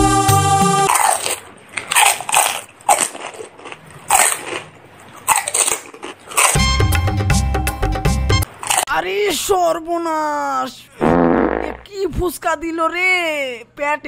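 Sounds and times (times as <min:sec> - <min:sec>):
person crunching crisp food: 0:00.9 - 0:06.7, 0:08.4 - 0:09.0.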